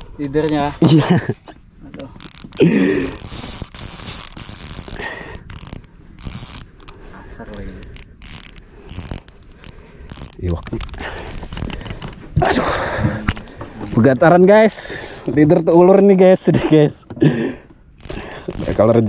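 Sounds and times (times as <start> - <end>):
fishing reel drag ratcheting: 2.0 - 13.0, 13.8 - 16.2, 18.0 - 19.0.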